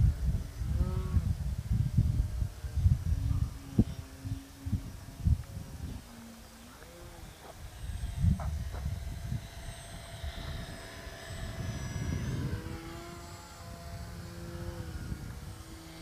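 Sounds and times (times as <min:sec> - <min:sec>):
model plane motor whining: 0:00.0 - 0:16.0.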